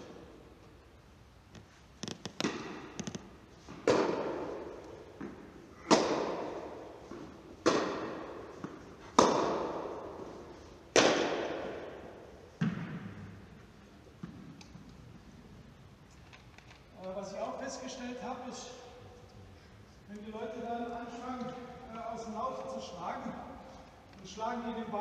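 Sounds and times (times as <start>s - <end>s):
rackets hitting tennis ball: 1.5s - 15.2s
tennis ball bouncing: 2.0s - 13.4s.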